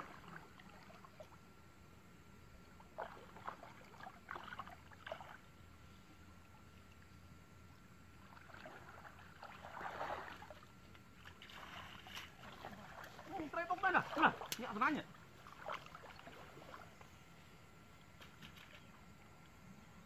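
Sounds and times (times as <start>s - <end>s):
water splashing and sloshing: 0.0s - 20.0s
swish of water: 8.2s - 16.9s.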